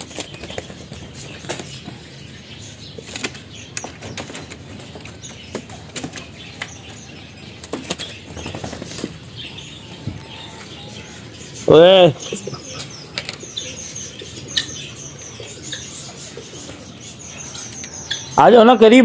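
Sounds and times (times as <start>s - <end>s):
bird wings flapping: 7.6s - 9.2s.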